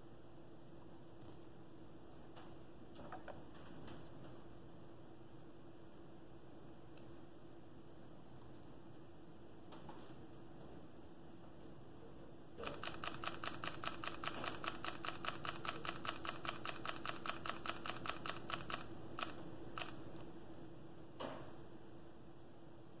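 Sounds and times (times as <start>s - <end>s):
camera shutter clicks: 12.6s - 20.0s.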